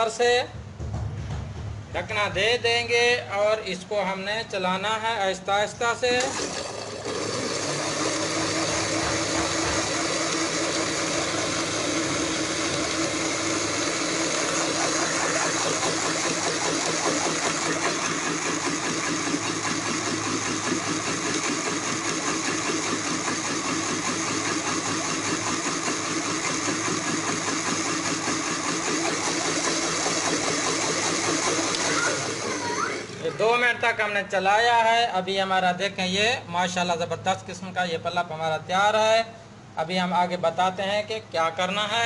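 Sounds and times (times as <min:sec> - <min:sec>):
electric blender running: 0:06.2 - 0:33.6.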